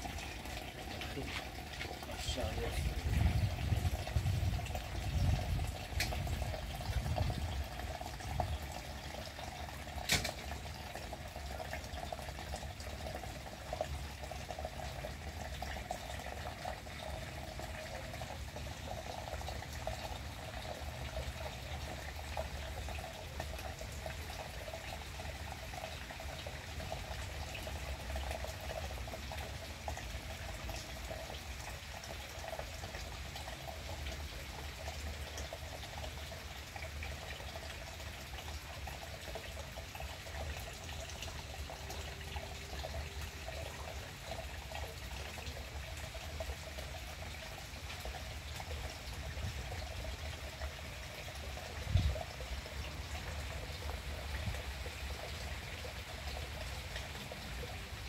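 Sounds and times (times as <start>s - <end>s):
rain falling on leaves: 0.0s - 3.0s.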